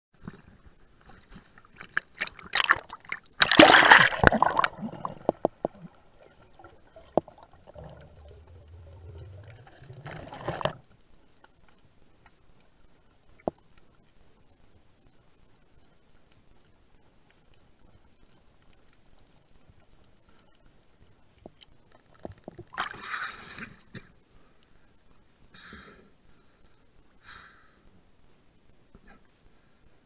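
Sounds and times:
water splashing and sloshing: 0.2 - 10.9, 21.4 - 24.1
low underwater hum: 0.2 - 30.0
rush of water: 2.2 - 10.8.

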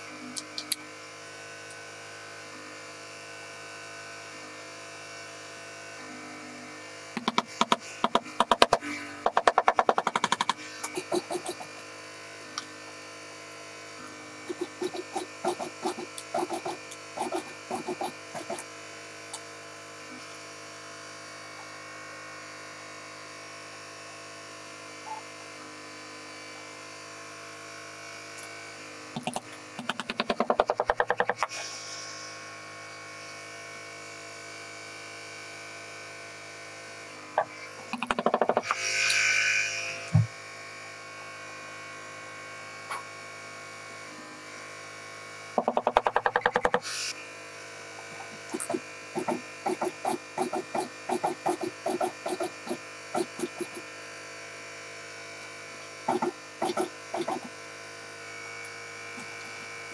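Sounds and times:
sewing machine motor humming: 14.4 - 18.7, 48.3 - 53.9, 56.1 - 57.5.

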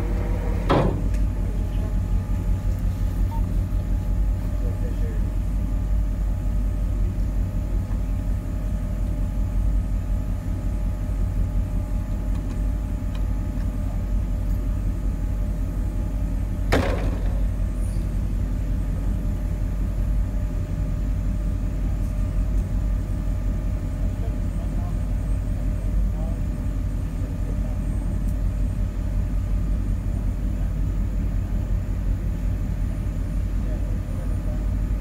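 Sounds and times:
vehicle engine idling: 0.0 - 20.6.

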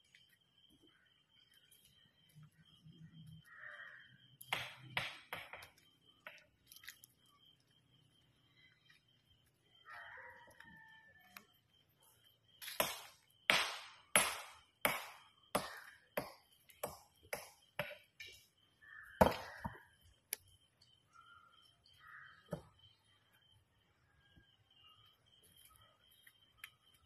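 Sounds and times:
hammer striking stone: 4.5 - 5.7, 12.6 - 18.0, 19.2 - 19.8.

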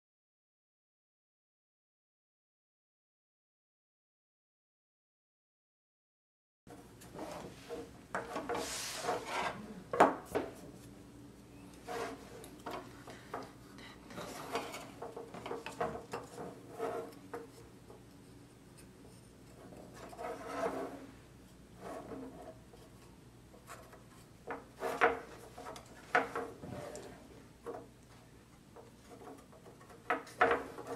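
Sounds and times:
wooden parts rubbing and scraping: 6.7 - 30.9.

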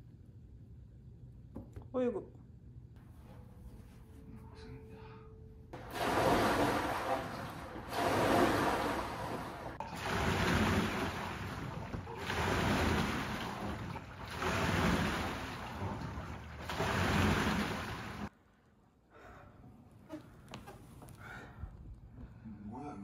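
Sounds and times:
water surging in rowing machine: 5.8 - 18.3.

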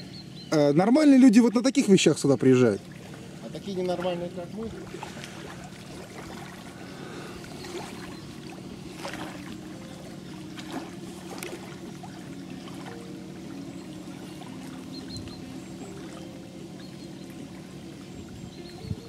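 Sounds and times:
boat motor hum: 0.0 - 19.0
water lapping at shore: 0.0 - 19.0.

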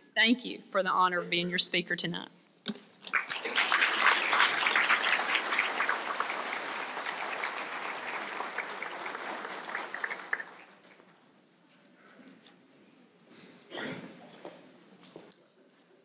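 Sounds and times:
audience applauding: 3.0 - 11.1.

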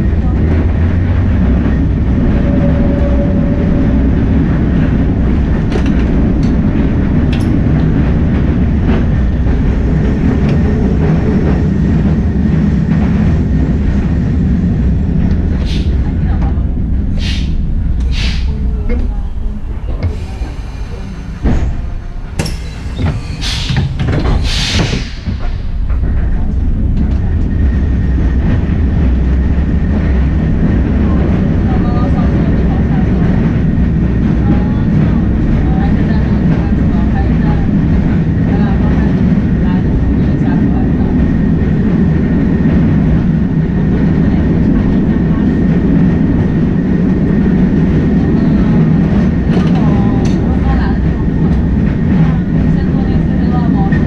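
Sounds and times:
tram rumbling: 0.0 - 54.0
air hiss bursts: 18.1 - 18.5.

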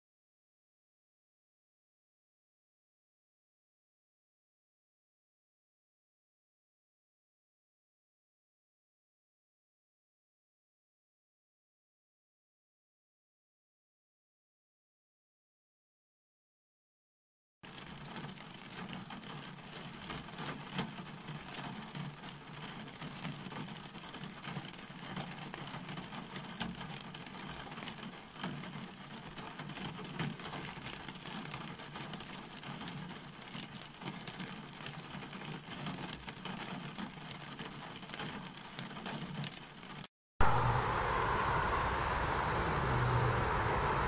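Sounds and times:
steady rain falling: 17.6 - 44.0
low rumble: 40.4 - 44.0.

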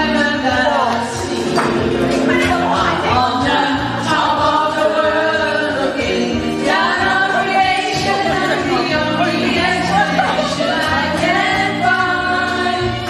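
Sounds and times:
group singing with accompaniment: 0.0 - 13.0.

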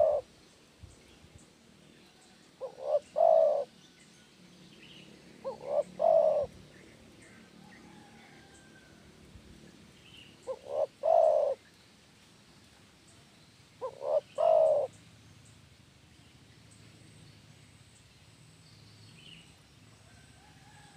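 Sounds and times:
dove cooing: 0.0 - 0.3, 2.6 - 3.7, 5.4 - 6.7, 10.4 - 11.6, 13.8 - 14.9.

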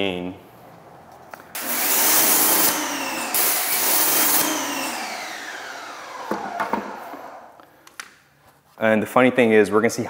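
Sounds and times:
pressure washer spraying: 1.6 - 4.8
motor winding down whine: 1.6 - 7.6.

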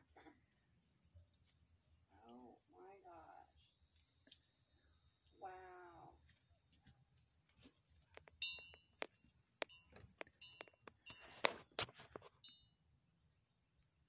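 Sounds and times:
wind chime tinkling: 8.4 - 11.6, 12.2 - 12.7.

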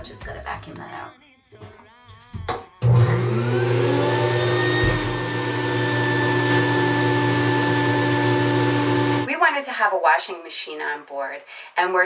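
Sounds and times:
vacuum cleaner sucking water: 2.8 - 9.4.

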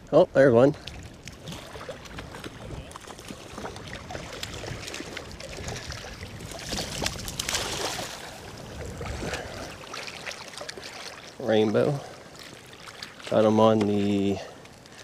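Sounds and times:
running water: 0.5 - 15.0
wind rumble on microphone: 0.8 - 10.0
fish thrashing and splashing: 0.9 - 11.4, 12.0 - 15.0.

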